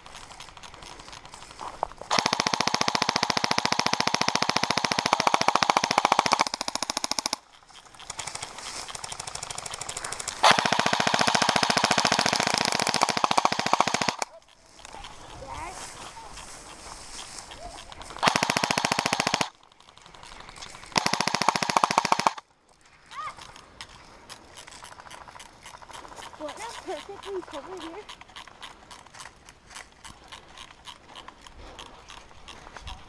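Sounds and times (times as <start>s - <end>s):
airsoft rifle firing full auto: 2.1s - 14.4s, 17.9s - 22.4s.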